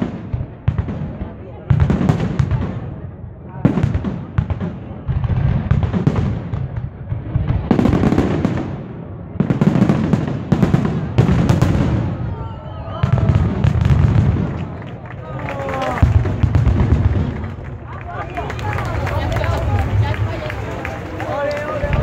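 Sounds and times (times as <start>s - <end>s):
fireworks bangs and crackling: 0.0s - 22.0s
low fireworks boom: 0.0s - 22.0s.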